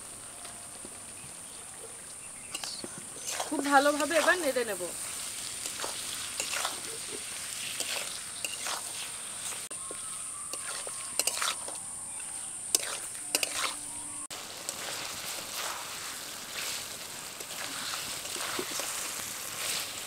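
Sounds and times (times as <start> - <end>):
chicken sizzling in oil: 0.0 - 20.0
metal spatula scraping pan: 5.5 - 9.6, 10.5 - 11.8, 12.7 - 13.9.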